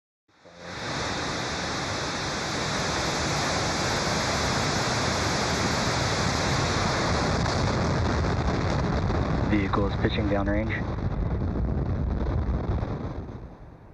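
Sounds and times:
rocket engines roaring: 0.4s - 13.9s.

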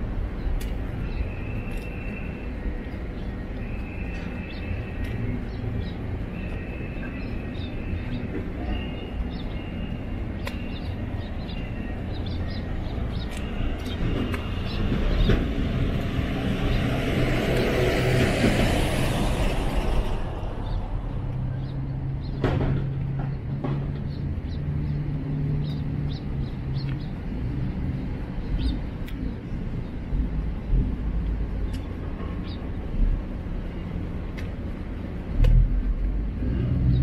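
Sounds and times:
traffic rumble: 0.0s - 37.0s
vehicle passing with hiss: 14.6s - 22.2s.

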